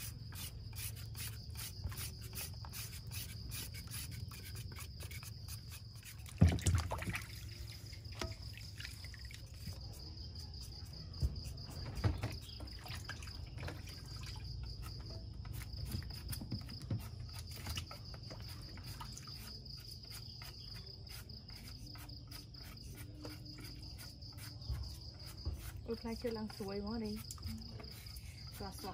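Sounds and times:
night insects chirring: 0.0s - 28.9s
water sloshing in plastic basin: 6.1s - 9.8s, 11.9s - 14.6s.

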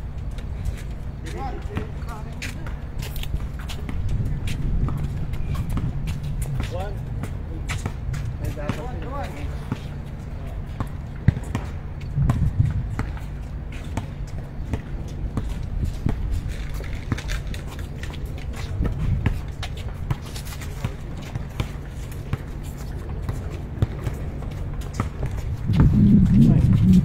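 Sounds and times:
running and shuffling footsteps: 0.0s - 27.0s
basketball dribbling: 10.8s - 13.2s, 23.2s - 27.0s.

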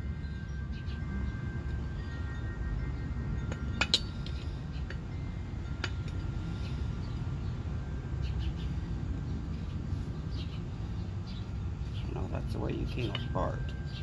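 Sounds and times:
steel pulleys clinking: 0.0s - 7.3s
low rumble: 0.0s - 14.0s.

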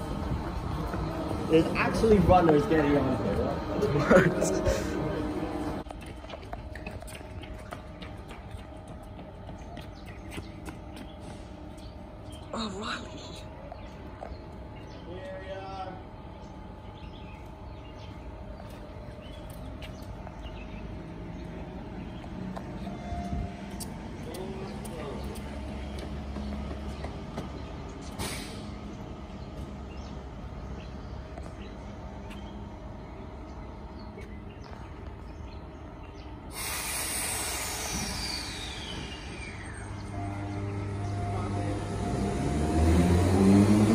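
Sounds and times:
train rumbling: 0.0s - 14.8s, 15.9s - 30.6s, 36.4s - 43.9s
loud hiss: 36.5s - 39.6s
electric train rolling: 36.5s - 43.9s.

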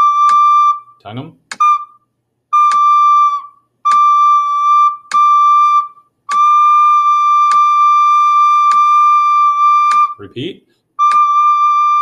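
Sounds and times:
recorder playing a high note: 0.0s - 0.8s, 11.0s - 12.0s
metronome clicking: 0.2s - 0.5s, 1.5s - 1.8s, 2.6s - 3.0s, 3.9s - 5.5s, 6.3s - 6.8s, 7.4s - 8.0s, 8.6s - 9.1s, 9.8s - 10.2s, 11.0s - 12.0s.

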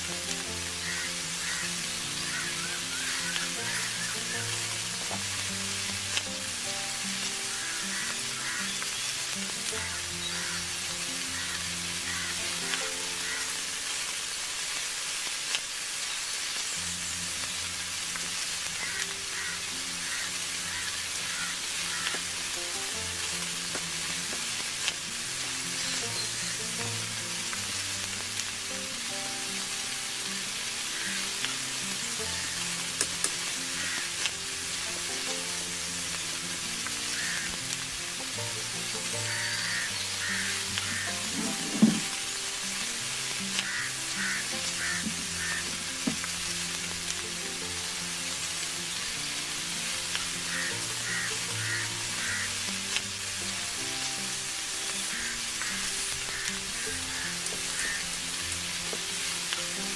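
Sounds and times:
background music: 0.0s - 14.3s, 16.7s - 59.9s
oil sizzling in a wok: 0.0s - 59.9s.

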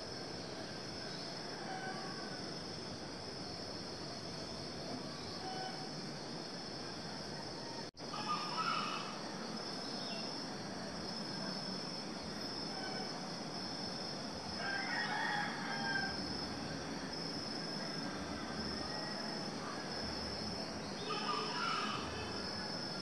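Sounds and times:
insects chirring: 0.0s - 23.0s
rooster crowing: 1.4s - 2.5s, 7.5s - 9.2s, 14.5s - 16.4s, 17.8s - 19.6s, 21.0s - 22.4s.

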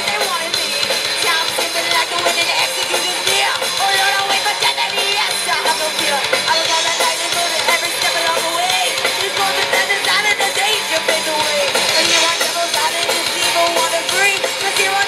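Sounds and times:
bass guitar: 0.0s - 15.0s
drum kit: 0.0s - 15.0s
electric guitars: 0.0s - 15.0s
woman singing: 0.0s - 15.0s.

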